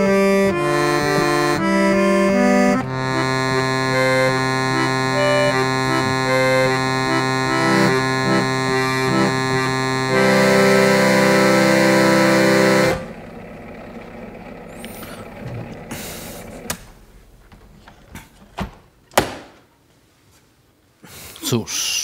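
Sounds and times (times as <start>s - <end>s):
harmonium playing chords: 0.0s - 17.4s.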